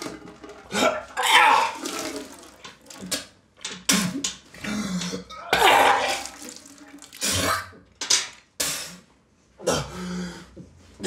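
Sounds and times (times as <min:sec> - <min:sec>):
man vomiting into metal bucket: 0:00.1 - 0:07.9.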